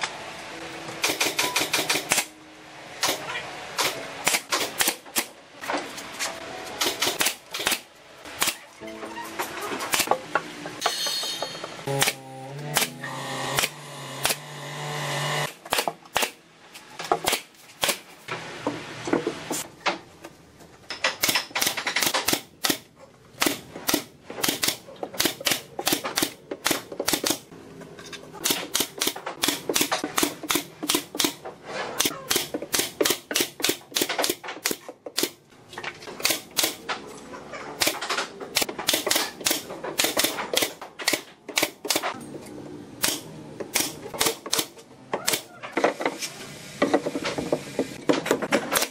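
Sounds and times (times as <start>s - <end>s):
nail guns firing into wood: 21.1s - 27.4s, 32.3s - 35.4s, 37.8s - 42.1s, 43.0s - 45.5s, 48.1s - 48.9s.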